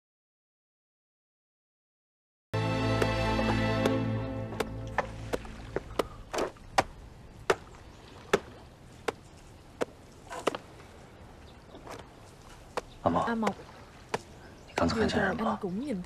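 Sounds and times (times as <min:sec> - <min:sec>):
background music: 0:02.6 - 0:06.0.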